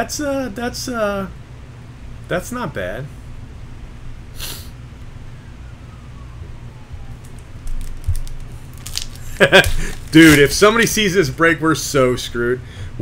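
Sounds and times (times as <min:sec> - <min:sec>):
low room hum: 0:00.0 - 0:13.0
brushing hiss: 0:04.4 - 0:04.8
trading cards handled on desk: 0:07.2 - 0:11.0.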